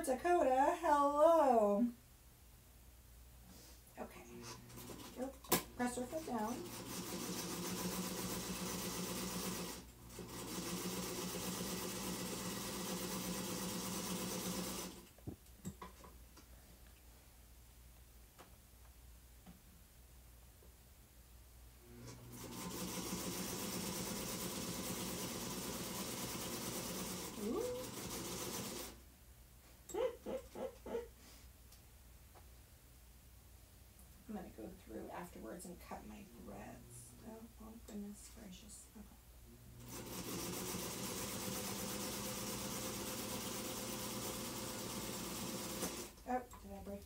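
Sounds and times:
sewing machine stitching: 4.4s - 15.1s, 22.0s - 29.0s, 39.8s - 46.3s.

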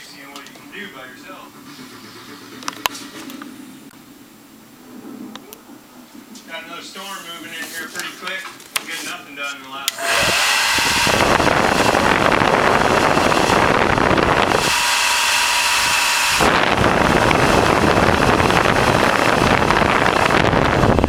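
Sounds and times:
airflow rumble on microphone: 0.6s - 8.4s, 10.0s - 21.0s
hair dryer blowing: 9.9s - 21.0s.

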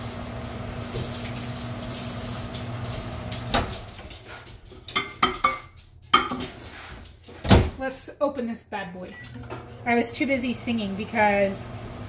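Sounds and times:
machine hum: 0.0s - 3.9s.

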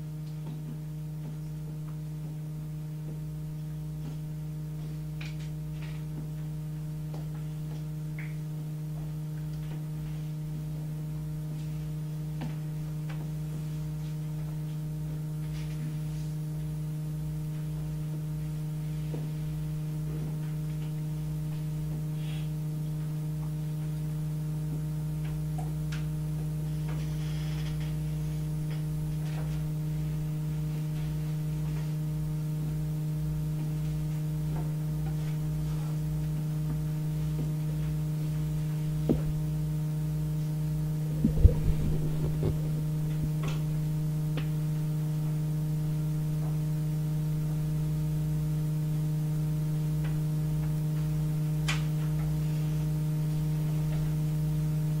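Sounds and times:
steady electrical hum: 0.0s - 55.0s
faint low pulsing: 40.9s - 44.2s.

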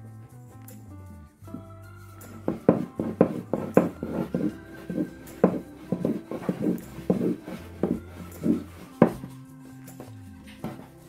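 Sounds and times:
faint background music: 0.0s - 11.0s
rolling pin knocking on wooden board: 2.4s - 9.3s.

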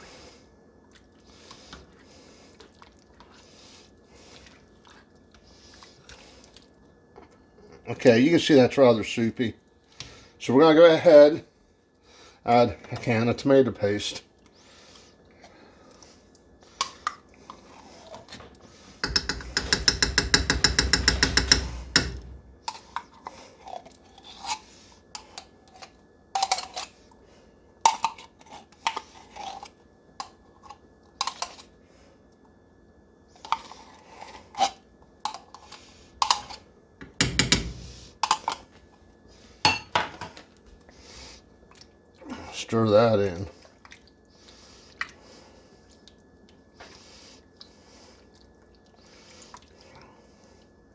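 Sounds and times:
spoon scraping tin can: 24.2s - 27.0s.

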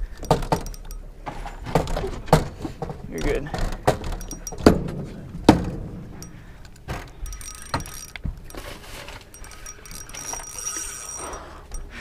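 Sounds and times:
fishing reel clicking and whirring: 0.0s - 1.0s, 7.1s - 12.0s.

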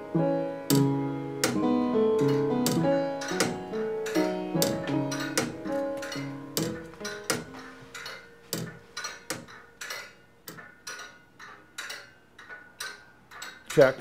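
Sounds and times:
piano and guitar note: 0.0s - 9.8s.

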